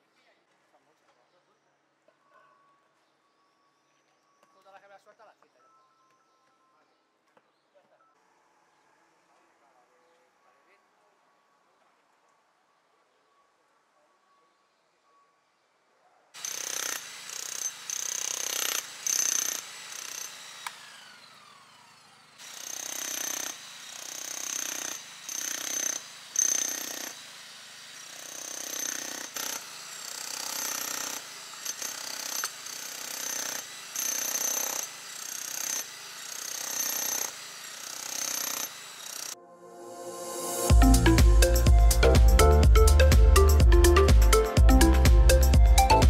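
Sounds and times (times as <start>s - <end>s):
demolition hammer chiselling tiles: 16.4s - 20.4s, 22.4s - 39.3s.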